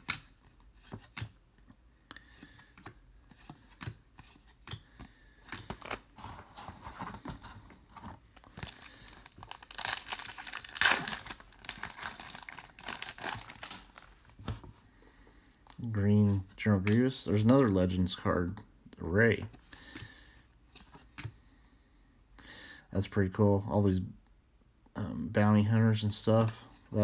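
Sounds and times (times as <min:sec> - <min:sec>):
cards being shuffled and flicked: 0:00.0 - 0:14.8
foil wrapper crinkling and tearing: 0:08.4 - 0:14.2.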